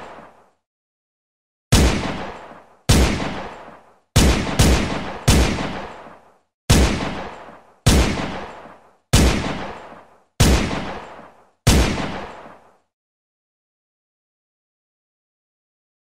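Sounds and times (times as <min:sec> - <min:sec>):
pistol shots echoing: 0:01.7 - 0:12.7.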